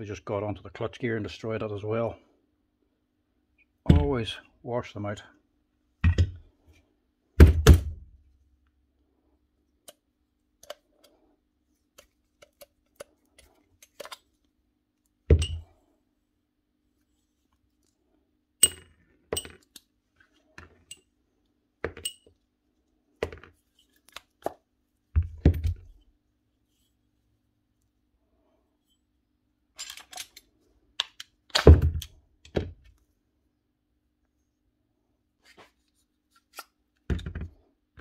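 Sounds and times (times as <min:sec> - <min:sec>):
steel parts clinking and knocking: 0:18.6 - 0:19.8, 0:21.9 - 0:22.3, 0:29.8 - 0:30.5.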